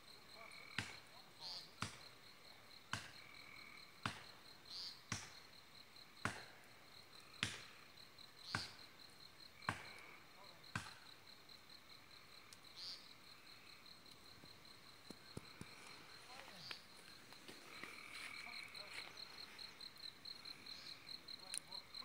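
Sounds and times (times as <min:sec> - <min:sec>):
insects chirping: 0:00.0 - 0:22.0
hatchet chopping wood: 0:01.8 - 0:02.0, 0:02.9 - 0:03.2, 0:04.0 - 0:04.3, 0:05.1 - 0:05.4, 0:06.2 - 0:06.5, 0:07.4 - 0:07.7, 0:10.7 - 0:11.0.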